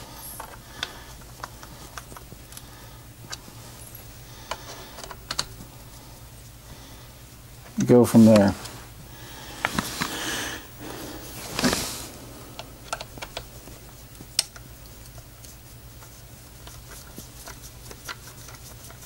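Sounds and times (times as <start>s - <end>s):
rustling: 0.0s - 19.0s.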